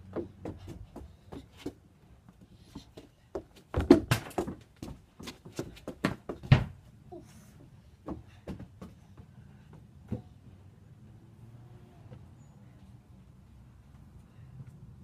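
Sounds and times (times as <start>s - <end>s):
quick footsteps and scuffs: 0.0s - 6.7s.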